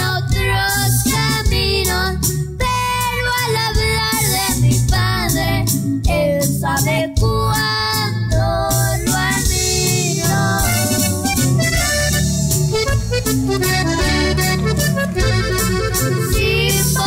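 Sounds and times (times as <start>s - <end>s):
child singing folk song: 0.0s - 11.0s, 16.3s - 17.0s
bass line: 0.0s - 17.0s
twelve-string guitar strumming: 9.8s - 17.0s.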